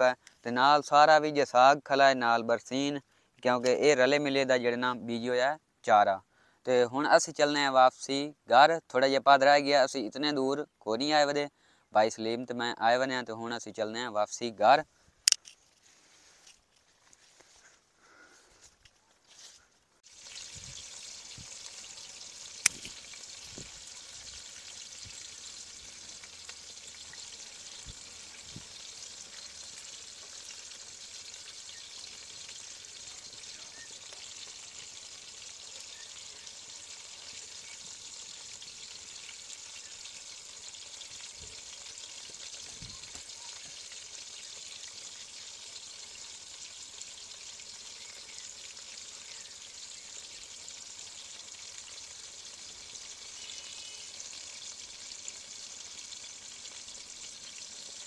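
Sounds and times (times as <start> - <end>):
deep-frying sizzle in oil: 20.0 - 58.0.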